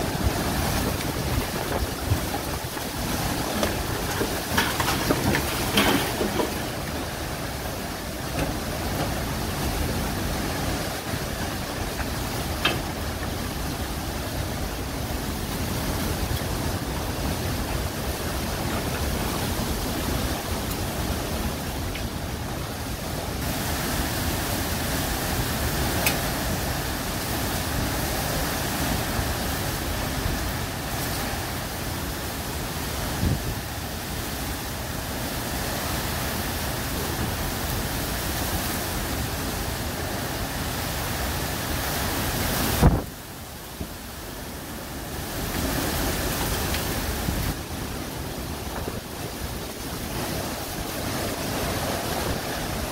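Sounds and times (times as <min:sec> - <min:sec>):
wind and rain through trees: 0:00.0 - 0:52.9.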